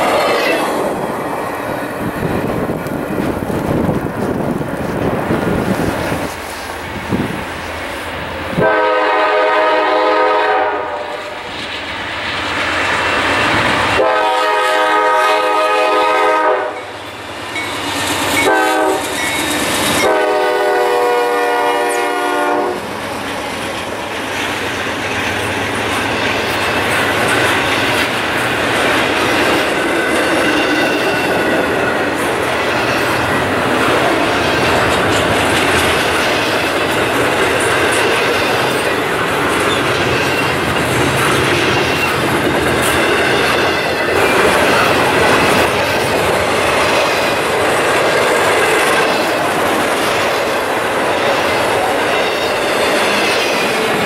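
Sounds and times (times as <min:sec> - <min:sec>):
freight train passing: 0:00.0 - 0:54.0
locomotive horn blasts: 0:08.5 - 0:11.5, 0:14.0 - 0:17.0, 0:18.4 - 0:19.1, 0:20.0 - 0:22.9
wheels clicking over rail joints: 0:22.9 - 0:54.0.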